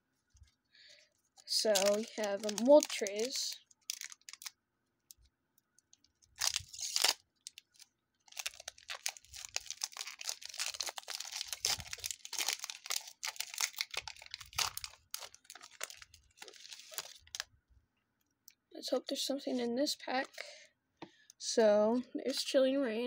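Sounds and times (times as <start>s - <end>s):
foil wrapper crinkling: 1.3s - 17.5s
foil wrapper ripping: 1.4s - 4.6s, 6.2s - 17.5s.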